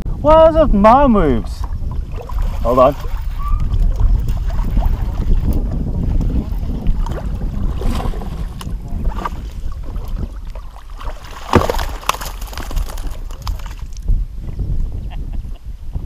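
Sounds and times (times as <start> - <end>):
wind buffeting microphone: 0.0 - 16.0
water splashing: 1.2 - 14.0.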